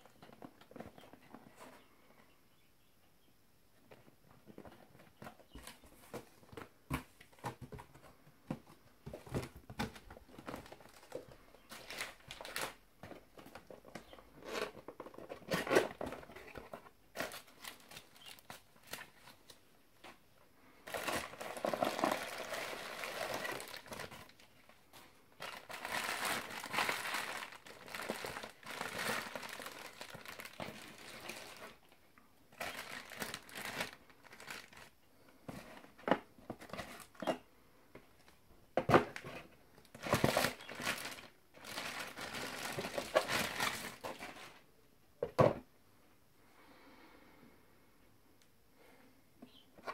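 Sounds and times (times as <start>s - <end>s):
bubble wrap crinkling: 9.3s - 12.8s, 13.5s - 19.6s, 20.8s - 31.8s, 32.5s - 35.0s, 39.9s - 44.6s
plastic bag crinkling: 10.2s - 12.8s, 13.4s - 19.2s, 20.8s - 24.7s, 25.4s - 31.8s, 32.5s - 35.0s, 39.9s - 44.6s.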